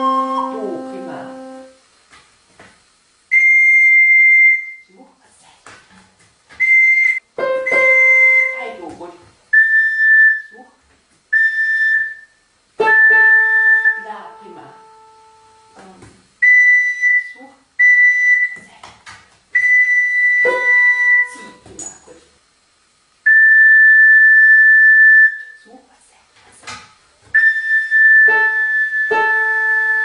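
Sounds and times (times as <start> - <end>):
high whistled note: 0.0 - 1.8, 6.6 - 8.8, 11.4 - 15.8, 19.6 - 21.6, 27.4 - 30.0.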